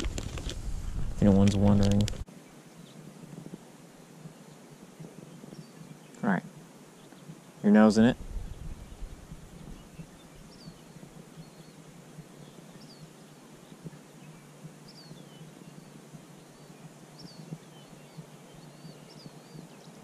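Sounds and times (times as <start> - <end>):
low steady background: 0.0 - 20.0
small bird chirping: 4.3 - 20.0.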